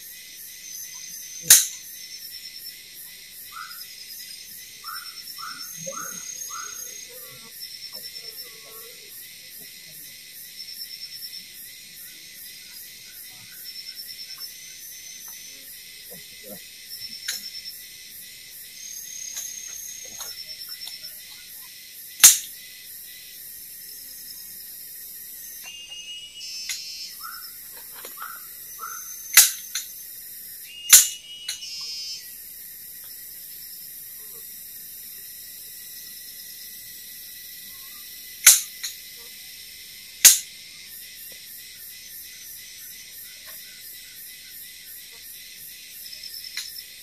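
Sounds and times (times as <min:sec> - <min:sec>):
forest insects chorus: 0:00.0 - 0:47.0.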